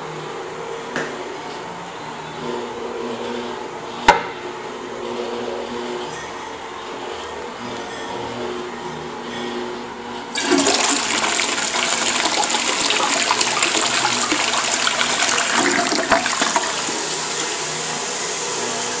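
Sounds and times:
toilet flushing: 0:10.3 - 0:19.0.

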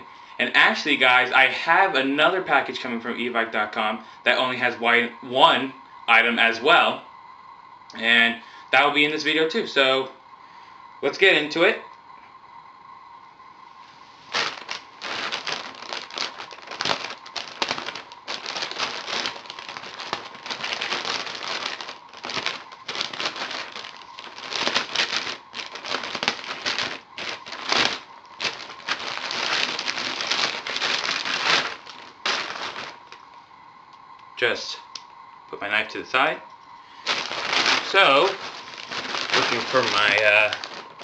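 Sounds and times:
plastic bag crinkling: 0:14.2 - 0:33.3, 0:36.9 - 0:41.0.

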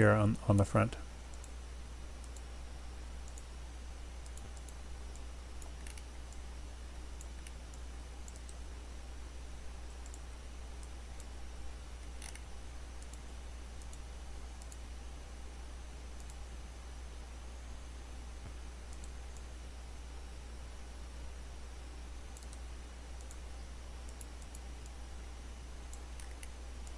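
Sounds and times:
low electrical hum: 0:00.0 - 0:26.9
microphone hiss: 0:00.0 - 0:26.9
computer mouse clicks: 0:01.3 - 0:01.6, 0:02.2 - 0:02.5, 0:03.2 - 0:03.5, 0:04.2 - 0:06.4, 0:07.2 - 0:08.6, 0:09.9 - 0:11.4, 0:12.0 - 0:14.9, 0:16.2 - 0:16.4, 0:18.4 - 0:19.5, 0:22.3 - 0:23.4, 0:24.0 - 0:25.0, 0:25.9 - 0:26.9.

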